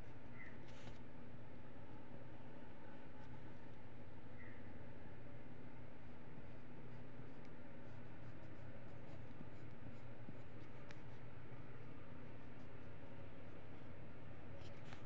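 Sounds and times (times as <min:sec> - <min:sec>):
steady low hum: 0:00.0 - 0:15.0
pencil scratching on paper: 0:06.0 - 0:14.0.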